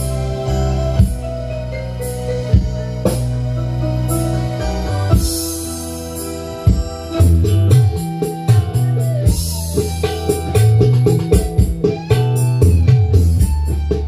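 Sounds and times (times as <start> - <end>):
loud music with heavy bass: 0.0 - 14.0.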